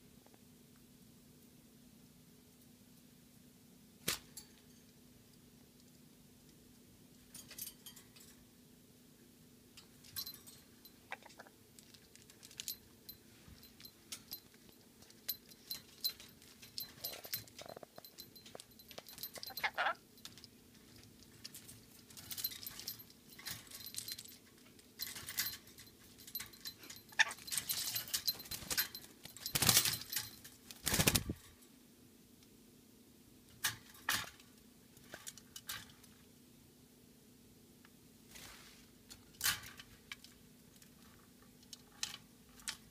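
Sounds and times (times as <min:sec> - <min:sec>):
bird clinking in wire cage: 0:04.1 - 0:04.9, 0:07.2 - 0:08.5, 0:09.8 - 0:31.7, 0:33.5 - 0:36.2, 0:39.1 - 0:42.9.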